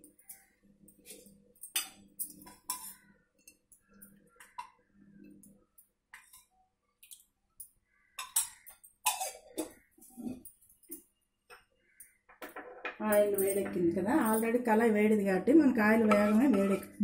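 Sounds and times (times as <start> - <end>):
metal kitchenware clinking: 1.0 - 4.7, 8.2 - 10.6, 12.4 - 14.9, 15.8 - 17.0.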